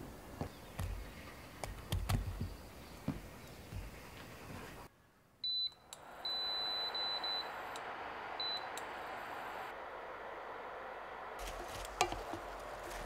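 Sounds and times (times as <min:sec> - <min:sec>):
cooktop control beeps: 0:05.4 - 0:07.5.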